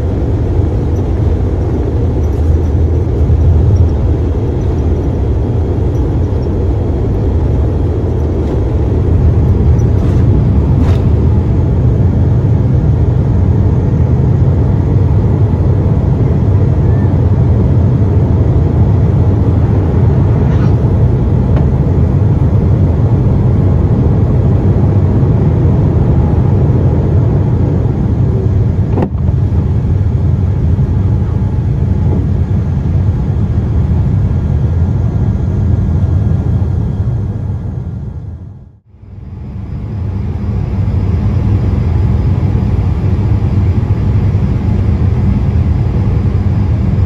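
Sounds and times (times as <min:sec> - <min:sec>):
rushing air: 0:00.0 - 0:13.1, 0:18.2 - 0:22.7
jet engine rumble: 0:00.0 - 0:47.0.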